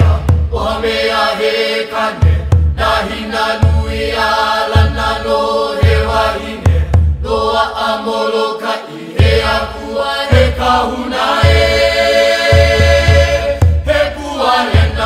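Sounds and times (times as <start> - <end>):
low drum beating: 0.0 - 0.9, 2.2 - 7.6, 10.3 - 15.0
chanting voices: 0.0 - 15.0.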